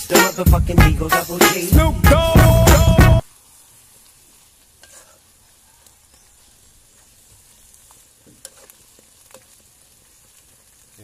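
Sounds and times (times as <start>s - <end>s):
music with heavy beat: 0.0s - 3.2s
faint sizzling in a wok: 0.0s - 11.0s.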